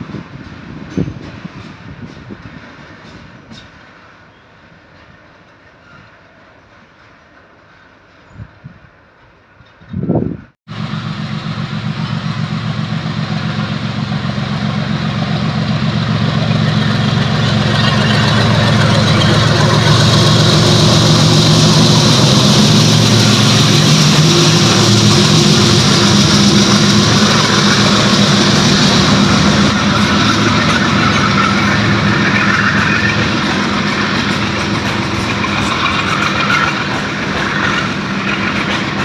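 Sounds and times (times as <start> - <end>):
train wagons rolling by: 0.0 - 39.0
diesel locomotive engine throbbing: 10.3 - 39.0.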